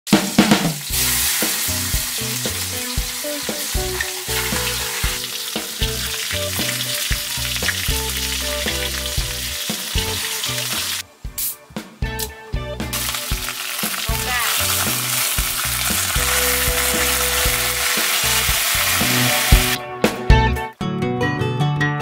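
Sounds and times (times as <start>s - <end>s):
fish sizzling in hot oil: 0.1s - 11.0s, 12.9s - 19.8s
low tune: 0.9s - 22.0s.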